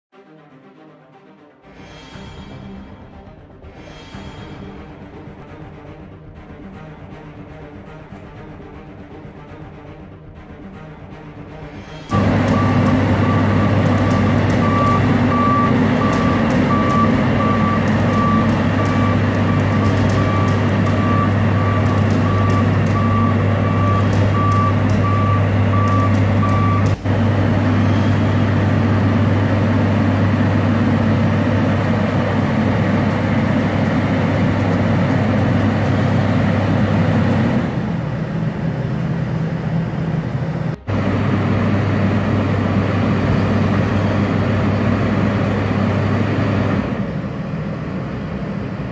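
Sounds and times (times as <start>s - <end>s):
warning alarm beeping: 12.1s - 28.6s
diesel engine running: 12.1s - 48.9s.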